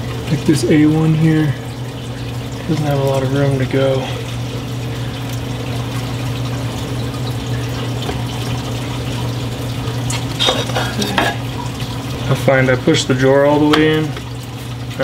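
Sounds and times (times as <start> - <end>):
pump humming: 0.0 - 15.0
water rushing in aquarium: 0.0 - 15.0.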